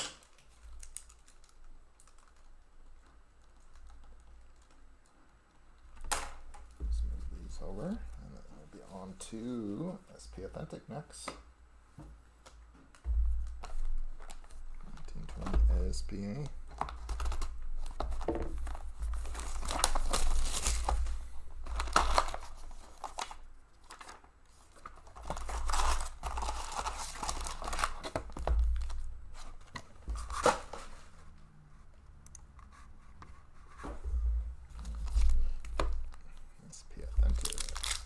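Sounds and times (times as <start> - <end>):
foil packs crinkling: 13.6 - 29.1, 37.0 - 38.0
plastic wrap tearing: 18.6 - 21.0, 21.6 - 28.2, 37.2 - 38.0.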